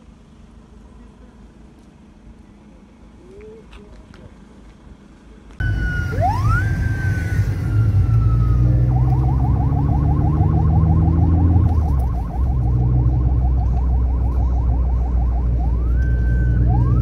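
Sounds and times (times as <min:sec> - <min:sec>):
car engine and tyres rumbling: 0:00.0 - 0:17.0
police siren wailing and yelping: 0:05.6 - 0:17.0.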